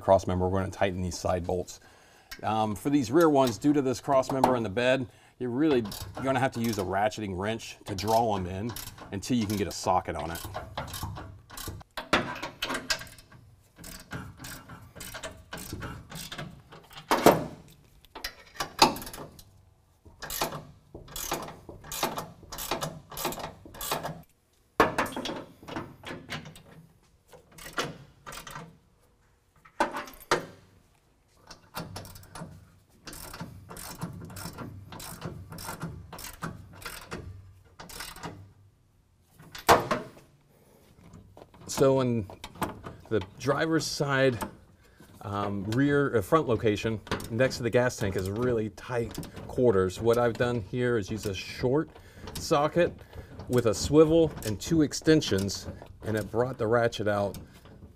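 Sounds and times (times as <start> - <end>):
hand ratchet clicking: 5.8 - 6.9, 7.9 - 19.6, 20.2 - 24.3, 25.2 - 28.7, 31.5 - 38.5.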